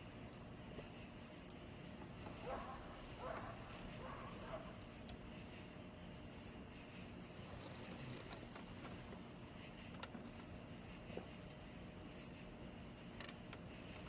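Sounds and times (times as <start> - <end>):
faint steady hiss: 0.0 - 14.0
low hum: 0.0 - 14.0.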